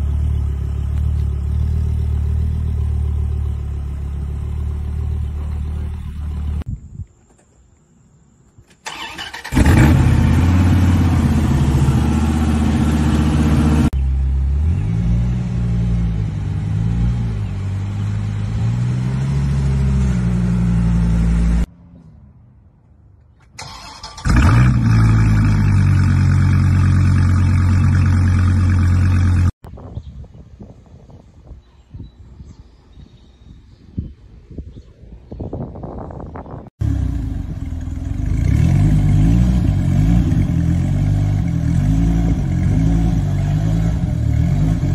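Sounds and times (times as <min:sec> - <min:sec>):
car engine starting: 0:08.8 - 0:21.7, 0:23.5 - 0:29.6, 0:36.8 - 0:44.9
car engine revving: 0:08.9 - 0:21.7, 0:36.8 - 0:44.9.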